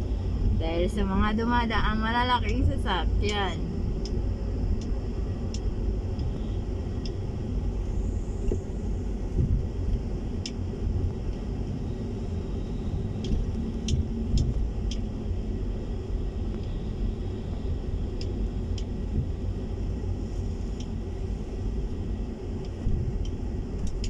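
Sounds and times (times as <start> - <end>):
car rumbling over rough road: 0.0 - 24.0
light ticks: 2.4 - 7.2, 9.4 - 11.8, 13.2 - 15.2, 16.5 - 16.8, 18.1 - 19.4, 20.7 - 21.0, 22.6 - 24.0.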